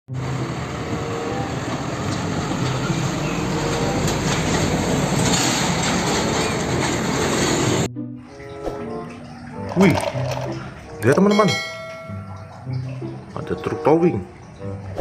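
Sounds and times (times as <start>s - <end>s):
truck diesel engine passing: 0.1s - 7.9s
road noise: 0.1s - 15.0s.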